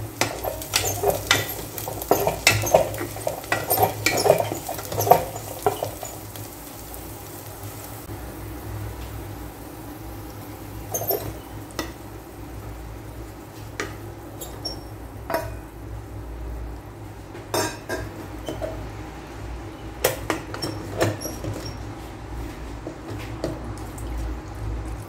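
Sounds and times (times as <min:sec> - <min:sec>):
utensils knocking and scraping pot: 0:00.1 - 0:06.4, 0:10.9 - 0:12.0, 0:20.0 - 0:21.8.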